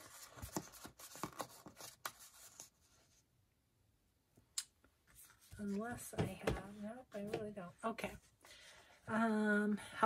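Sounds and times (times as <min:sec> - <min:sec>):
paper rustling and tapping: 0:00.0 - 0:02.6.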